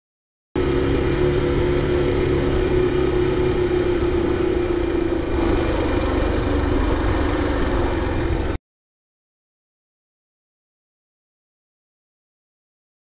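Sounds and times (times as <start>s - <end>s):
motorcycle engine running: 0.6s - 8.6s.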